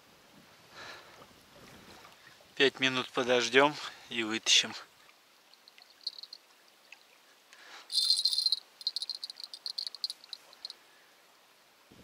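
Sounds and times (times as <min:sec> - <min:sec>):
small alarm bell jingling: 0:06.0 - 0:06.4, 0:07.9 - 0:10.7.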